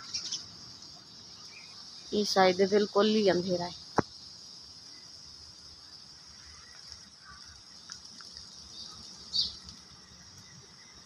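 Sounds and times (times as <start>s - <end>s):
bird chirp: 0.0s - 2.2s, 8.4s - 11.0s
insects chirring: 0.0s - 11.0s.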